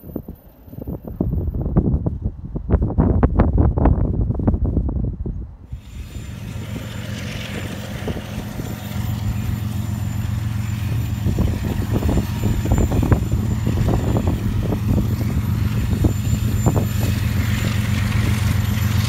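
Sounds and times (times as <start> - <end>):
diesel locomotives droning: 0.0 - 19.0
wind buffeting microphone: 0.0 - 19.0
hiss: 5.7 - 9.5.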